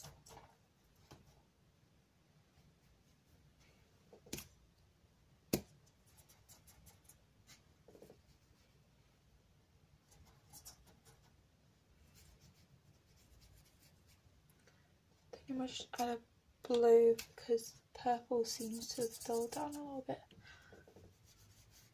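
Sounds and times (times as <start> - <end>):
paintbrush scratching on paper: 6.0 - 8.7, 10.1 - 11.4, 12.0 - 14.3, 18.4 - 20.1, 20.9 - 21.9.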